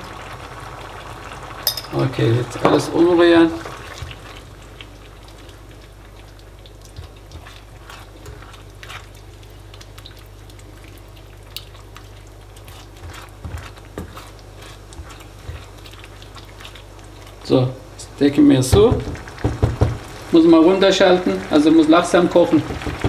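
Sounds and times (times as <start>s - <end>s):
spatula scraping pan: 7.0s - 9.2s, 12.6s - 17.5s.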